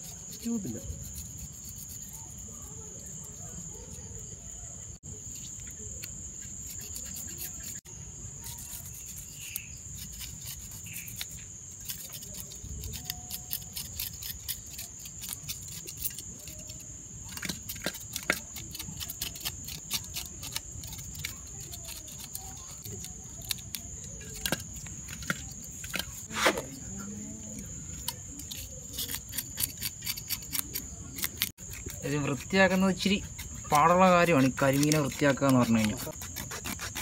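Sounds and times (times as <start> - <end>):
knife scraping fish scales: 0.0 - 3.9, 5.3 - 26.9, 27.9 - 37.0
high insect trill: 0.0 - 37.0.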